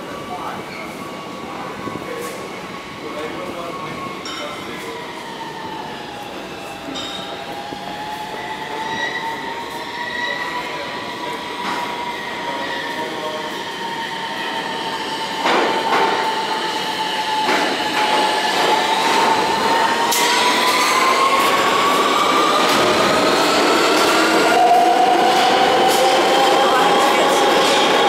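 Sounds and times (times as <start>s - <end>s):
subway train high whine: 0.0s - 28.0s.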